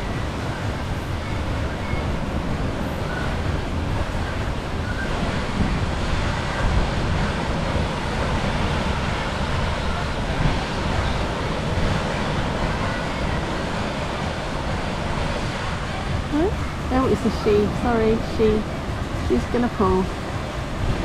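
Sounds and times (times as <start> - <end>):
surf washing on beach: 0.0 - 21.0
wind rumbling on microphone: 0.0 - 21.0.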